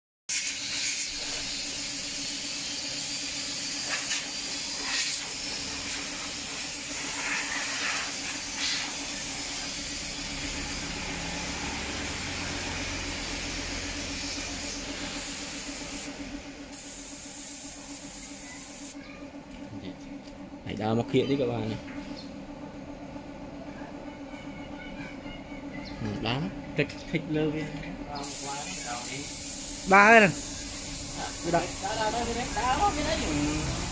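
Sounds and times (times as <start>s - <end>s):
spray gun hissing: 0.3s - 19.0s, 28.2s - 33.9s.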